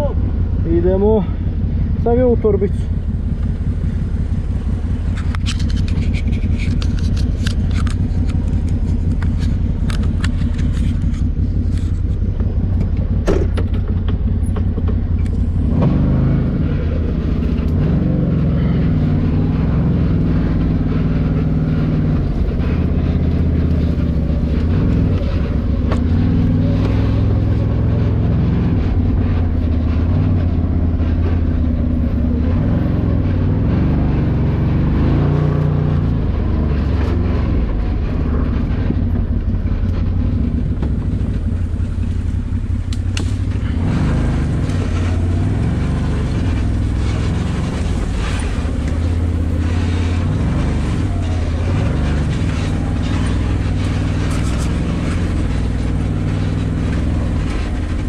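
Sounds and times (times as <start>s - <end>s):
engine running: 0.0s - 58.0s
sharp knocks: 13.2s - 15.1s.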